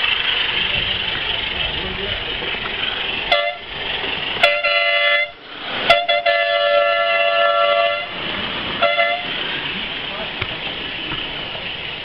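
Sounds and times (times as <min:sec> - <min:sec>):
two-tone steam whistle: 0:03.3 - 0:03.7, 0:04.4 - 0:08.1, 0:08.8 - 0:09.3.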